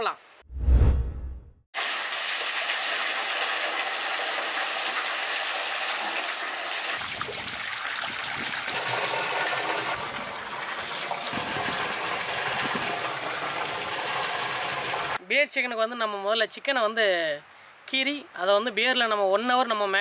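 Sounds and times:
water gushing from pipe into trough: 0:01.8 - 0:15.2.

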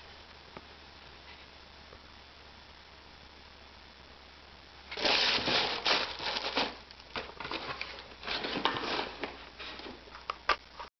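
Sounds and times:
cardboard shoebox handled: 0:04.9 - 0:10.1
tissue paper crinkling: 0:04.9 - 0:10.1.

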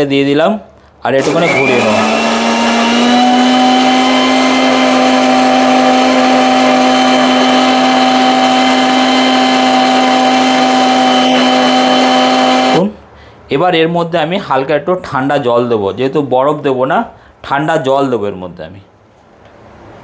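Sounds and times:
electric mixer grinder whining: 0:01.2 - 0:12.9.

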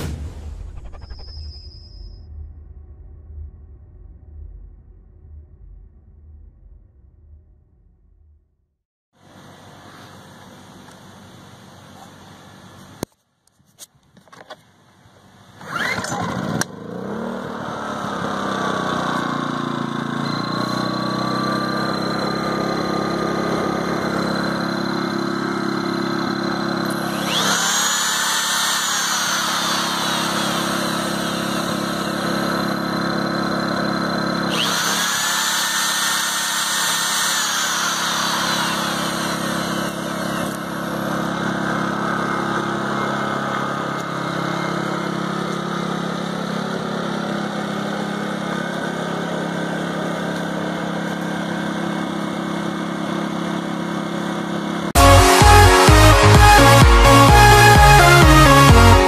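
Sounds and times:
generator engine running: 0:16.3 - 0:59.0.

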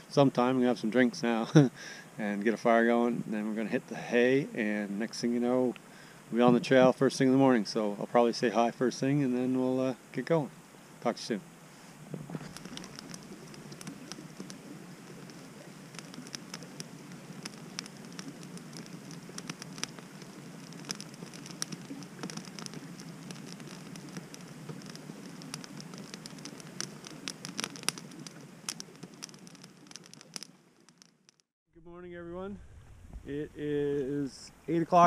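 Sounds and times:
campfire crackling and popping: 0:00.0 - 0:03.0, 0:11.1 - 0:31.5
fire hissing: 0:00.9 - 0:31.4.

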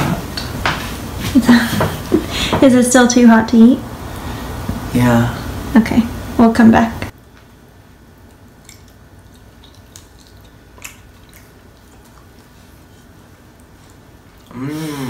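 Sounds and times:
person chewing: 0:08.2 - 0:15.0.

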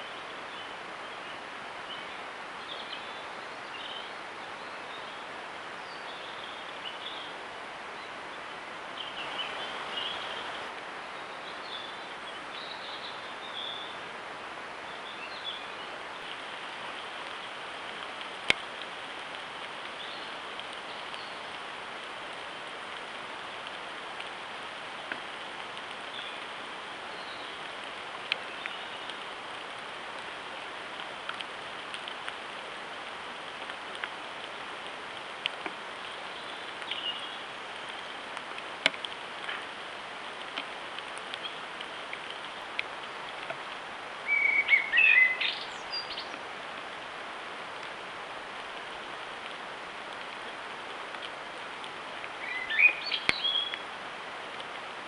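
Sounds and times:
microphone hiss: 0:00.0 - 0:55.0
faint bird chirps: 0:44.2 - 0:46.3, 0:52.4 - 0:53.8.

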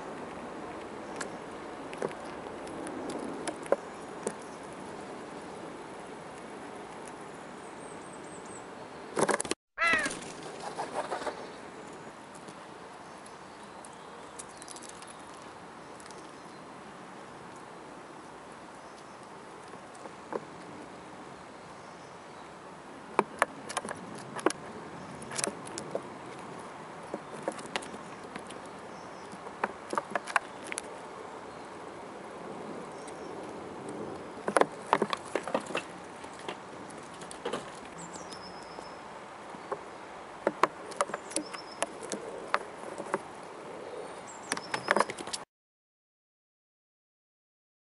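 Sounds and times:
squirrel chewing food: 0:00.1 - 0:07.7, 0:11.7 - 0:20.8, 0:23.0 - 0:38.8, 0:39.4 - 0:43.8.

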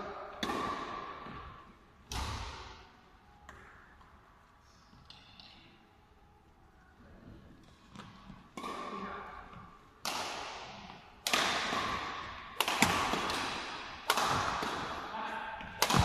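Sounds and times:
rackets striking shuttlecock: 0:00.3 - 0:02.8, 0:07.9 - 0:16.0.

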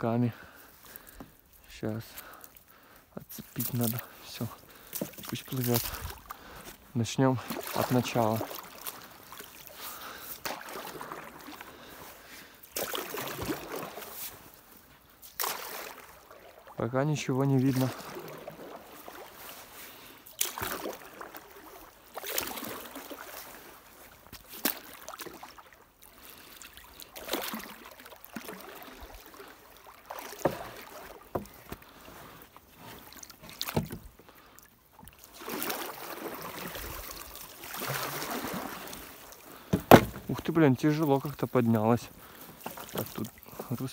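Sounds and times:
water swishing and splashing: 0:00.0 - 0:43.9
sharp knocks: 0:39.7 - 0:40.3.

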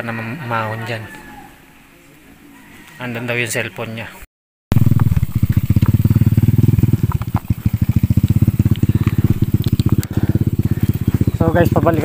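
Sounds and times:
motorbike engine puttering: 0:04.7 - 0:12.0.

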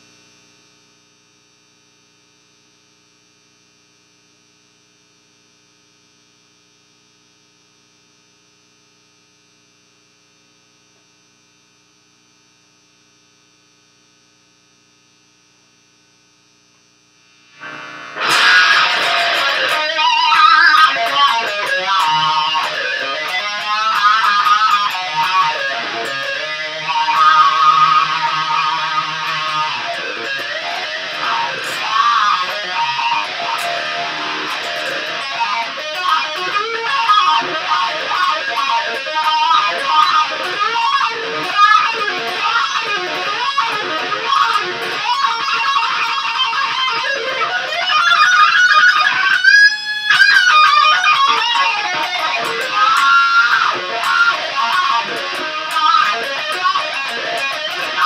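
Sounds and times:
electrical hum from guitar amplifier: 0:00.0 - 0:58.0
electric guitar playing lead lines: 0:17.5 - 0:58.0.

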